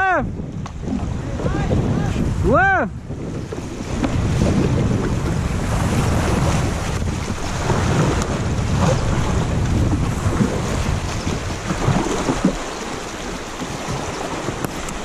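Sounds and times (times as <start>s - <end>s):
wind buffeting microphone: 0.0s - 15.0s
paddle strokes splashing: 0.5s - 15.0s
river rapid rushing: 0.8s - 15.0s.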